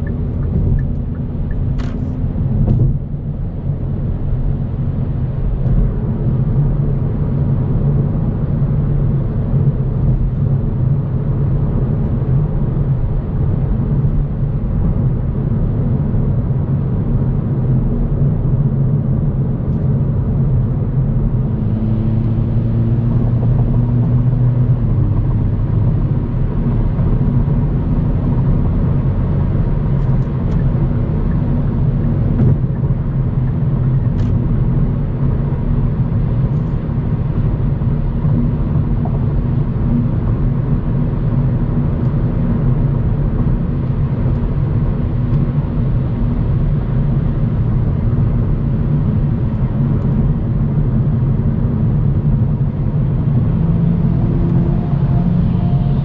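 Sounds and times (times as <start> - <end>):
car engine and road rumble: 0.0 - 56.0.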